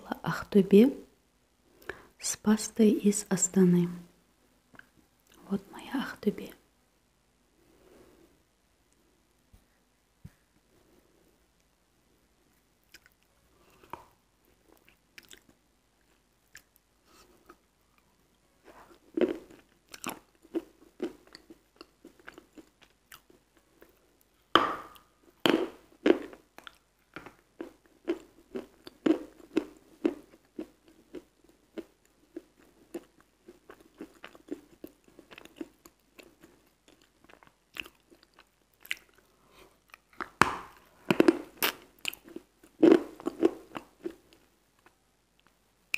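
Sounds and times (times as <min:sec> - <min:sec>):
crunchy chewing of chalk: 0:12.9 - 0:24.3, 0:25.0 - 0:45.5.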